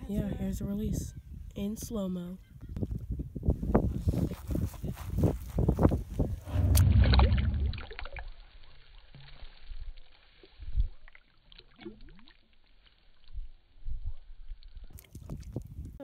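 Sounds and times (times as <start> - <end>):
water movement: 6.2 - 13.4
low thumps: 6.3 - 8.1
slowed fish splash: 6.4 - 15.7.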